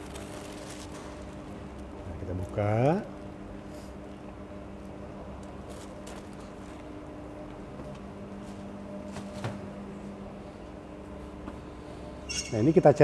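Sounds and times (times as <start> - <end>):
baking paper rustling: 0.0 - 2.7, 5.6 - 6.8
low mechanical hum: 0.0 - 13.0.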